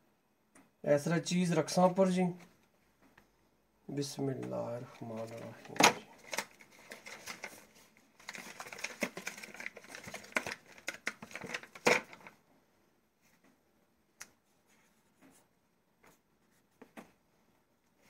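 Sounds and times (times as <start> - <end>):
plastic packaging crinkling: 4.9 - 12.4.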